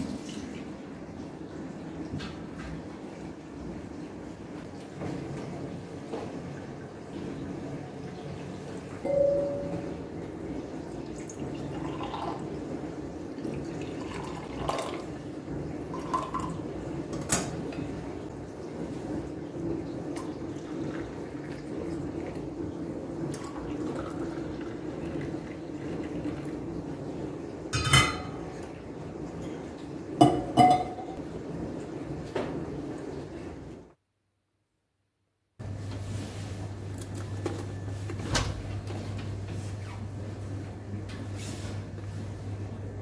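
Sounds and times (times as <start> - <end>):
tea pouring into cups: 11.0 - 12.6, 13.3 - 15.2, 15.9 - 16.6, 23.4 - 26.6.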